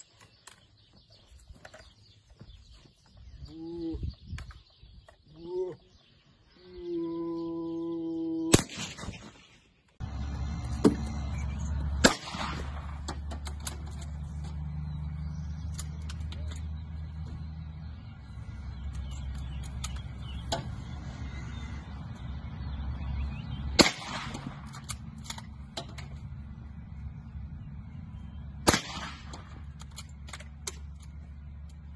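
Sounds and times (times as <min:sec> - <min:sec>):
rifle shots echoing: 0:08.5 - 0:09.5, 0:12.0 - 0:13.1, 0:23.8 - 0:24.8, 0:28.6 - 0:29.8.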